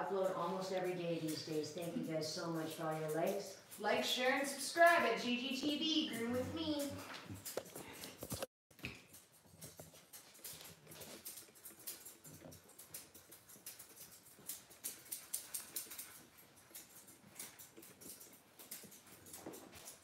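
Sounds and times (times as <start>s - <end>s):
dog panting softly: 10.0s - 20.0s.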